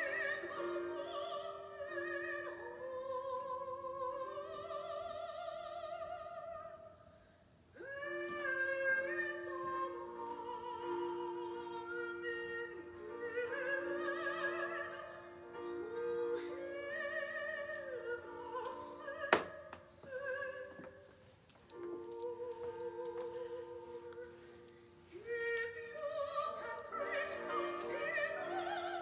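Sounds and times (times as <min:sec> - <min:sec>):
operatic voice singing: 0:25.2 - 0:29.0.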